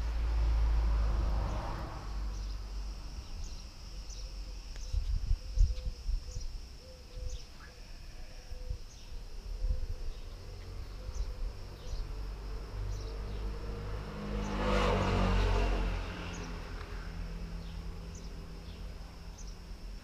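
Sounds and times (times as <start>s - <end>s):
low rumble on microphone: 0.0s - 7.5s
insects droning: 0.0s - 20.0s
bird chirps: 3.3s - 7.7s, 8.9s - 12.2s.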